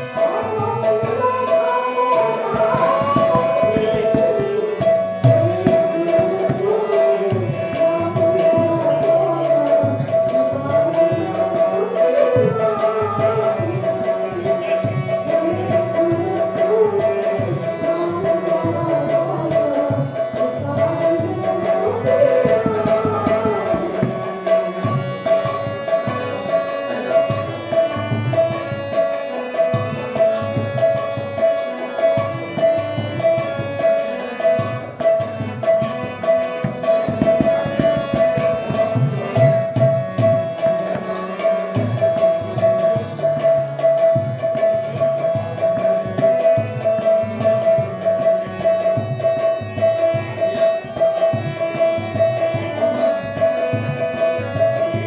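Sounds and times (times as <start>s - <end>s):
woman singing: 0.0s - 26.4s
barrel drum rhythm: 0.0s - 55.0s
harmonium melody: 0.0s - 55.0s.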